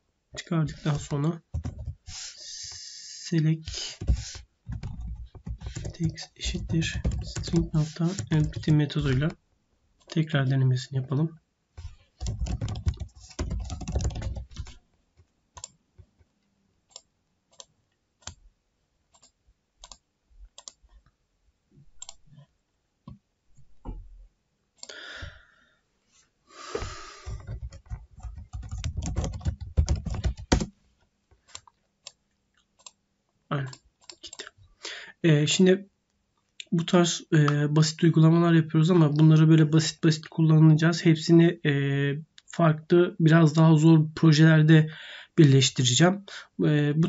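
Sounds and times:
keyboard typing: 0.7s - 2.8s, 3.8s - 9.4s, 11.8s - 16.3s, 19.1s - 20.9s, 27.2s - 30.7s.

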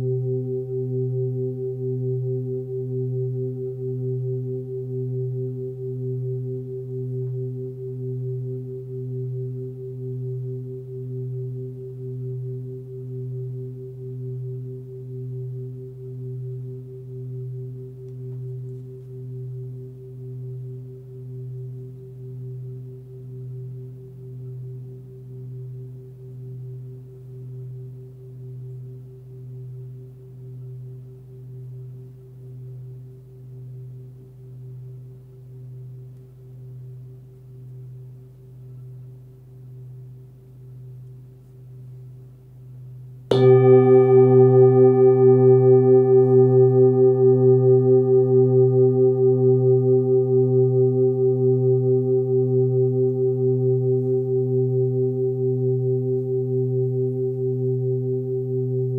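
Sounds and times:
singing bowl ringing: 0.0s - 35.7s, 43.3s - 58.9s
singing bowl struck and ringing: 43.3s - 58.9s.

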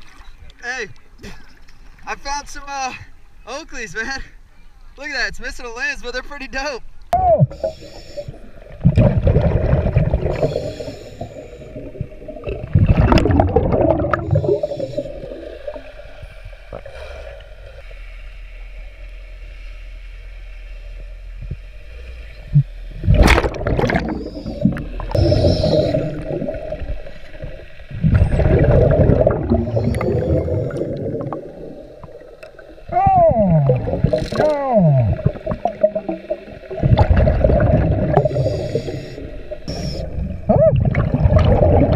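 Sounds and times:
regulator bubbling exhalation: 7.5s - 15.8s, 22.5s - 32.7s, 33.3s - 41.9s.

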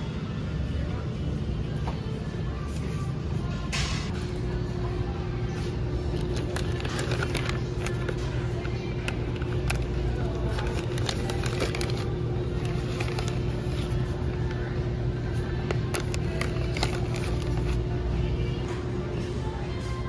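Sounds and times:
low store background hum: 0.0s - 20.0s
plastic packets crinkling: 6.0s - 14.7s, 15.5s - 18.0s.

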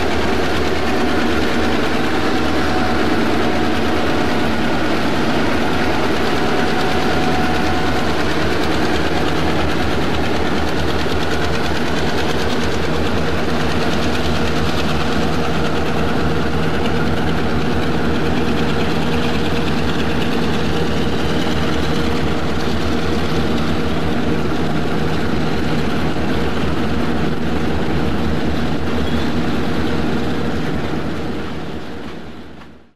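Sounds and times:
heavy locomotive engine drone: 0.0s - 32.9s
train cars rumbling on rails: 0.0s - 32.9s.

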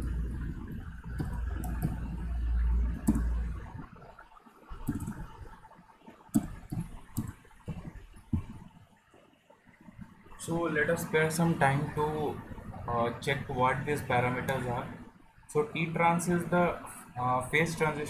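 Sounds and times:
keyboard typing clicks: 1.0s - 3.5s, 4.8s - 5.3s.

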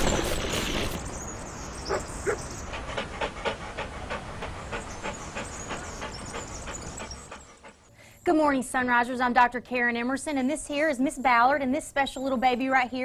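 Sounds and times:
rushing hiss: 0.0s - 1.0s
dog panting: 1.9s - 7.9s.

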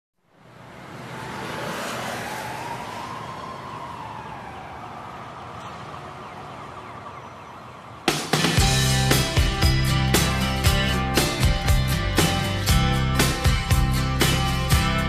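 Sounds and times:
street and traffic noise: 0.2s - 15.0s
siren wailing: 0.8s - 8.5s
strummed guitar music: 8.4s - 15.0s.

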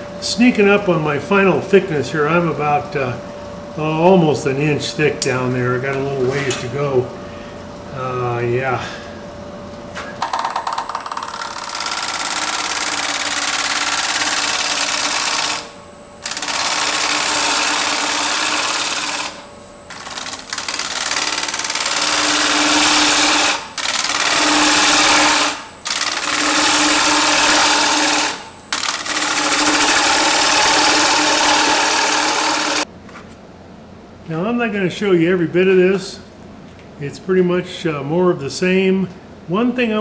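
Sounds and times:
faint lathe whine: 0.0s - 32.9s
lathe tool shearing wood: 11.6s - 19.4s, 20.0s - 32.8s.

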